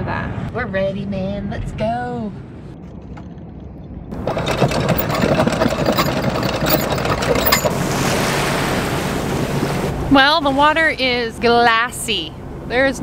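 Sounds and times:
low engine hum: 0:01.2 - 0:13.0
water splashing along hull: 0:04.1 - 0:12.8.

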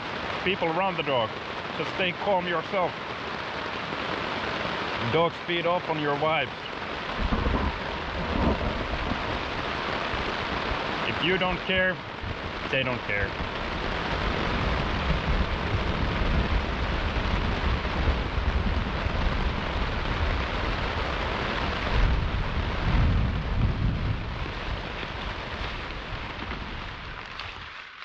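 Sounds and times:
heavy rain on tent: 0:00.0 - 0:28.0
thunder rumbling: 0:05.0 - 0:27.3.

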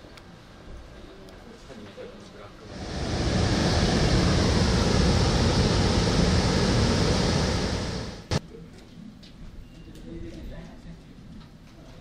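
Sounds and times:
train wheels rumbling on rail: 0:02.7 - 0:08.4.

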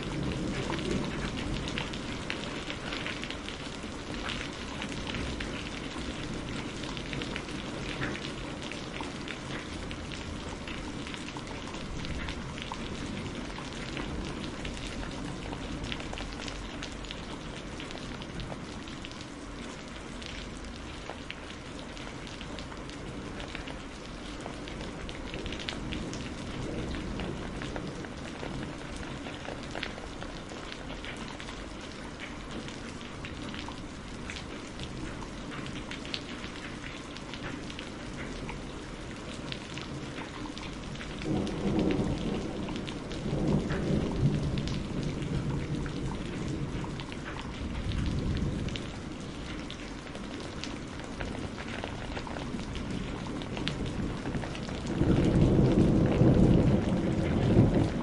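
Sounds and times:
heavy rain pouring off roof: 0:00.0 - 0:58.0.

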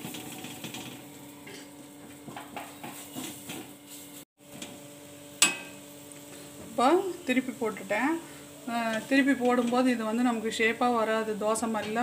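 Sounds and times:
metal spatula clinking on pan: 0:05.4 - 0:05.8.

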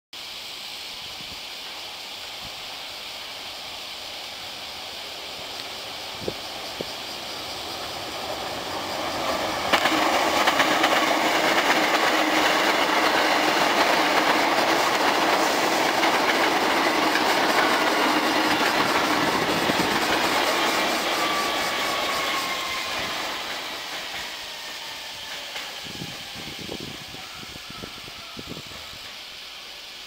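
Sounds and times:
train running past: 0:00.2 - 0:30.0
falling brake whine: 0:04.9 - 0:29.9
wheels clattering over rail joints: 0:07.6 - 0:21.4.

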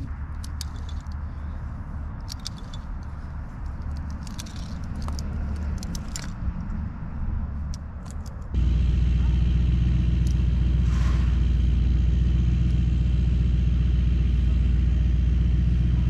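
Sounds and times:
metal climbing hardware clinking: 0:00.0 - 0:06.7
low engine drone: 0:00.0 - 0:16.0
loud engine: 0:08.5 - 0:16.0.

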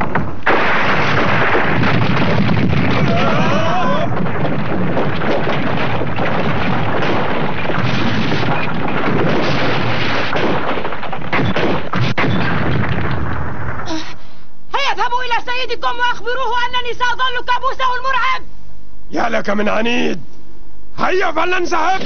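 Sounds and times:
rock and timber crashing: 0:00.0 - 0:13.9
loud rumble of cave-in: 0:01.8 - 0:09.9.

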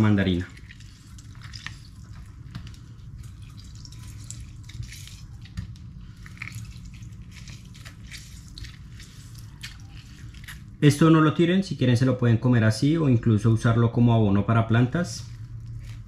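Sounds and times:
juice dripping and splashing: 0:00.0 - 0:10.9, 0:15.0 - 0:16.0.

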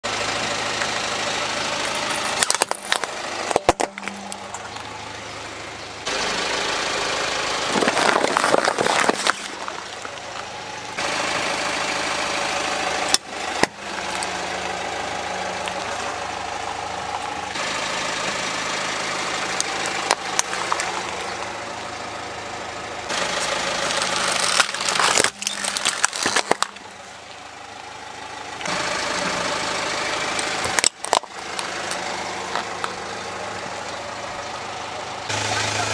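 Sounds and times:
car engine idling: 0:00.0 - 0:35.9
plastic toys cracking and crunching: 0:01.8 - 0:05.0, 0:07.7 - 0:10.6, 0:19.6 - 0:21.5, 0:23.2 - 0:27.0, 0:30.4 - 0:33.0.

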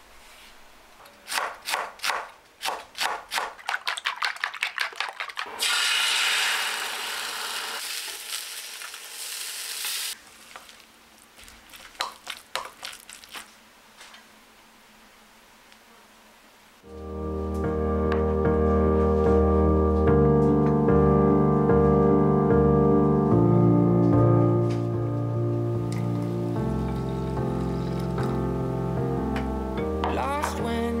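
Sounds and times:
food sizzling in a frying pan: 0:05.6 - 0:10.8.

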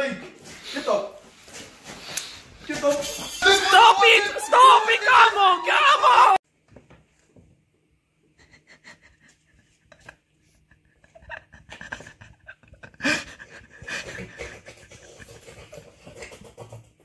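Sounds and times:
person breathing heavily: 0:12.9 - 0:15.4.

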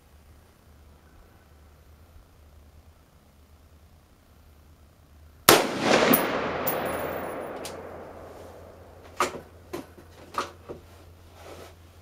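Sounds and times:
rifle shot echoing: 0:05.5 - 0:09.6.

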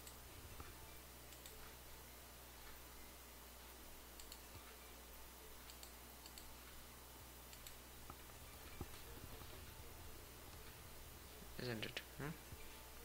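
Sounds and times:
computer mouse clicks: 0:00.0 - 0:01.8, 0:04.1 - 0:04.8, 0:05.6 - 0:06.8, 0:07.5 - 0:09.0
low electrical hum: 0:00.0 - 0:13.0.

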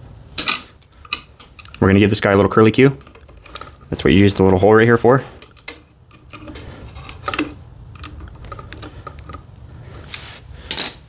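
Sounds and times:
wire strippers clicking and scraping: 0:00.4 - 0:04.6, 0:05.2 - 0:11.0.

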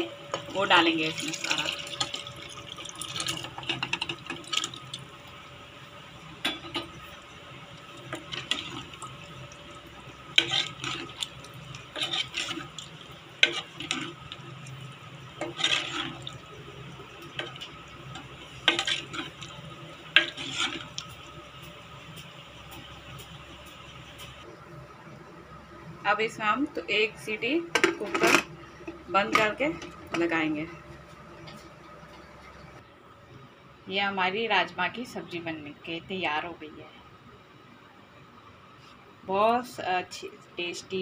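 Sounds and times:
beans slopping into gravy: 0:08.0 - 0:16.5
ladle scraping and clinking pot: 0:10.3 - 0:14.4, 0:15.4 - 0:16.5, 0:17.2 - 0:21.1.

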